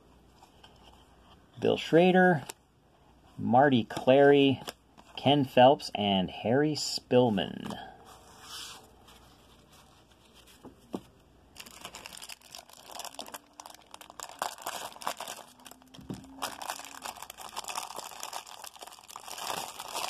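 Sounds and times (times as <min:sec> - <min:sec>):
plastic wrapper crinkling: 0:11.5 - 0:20.0.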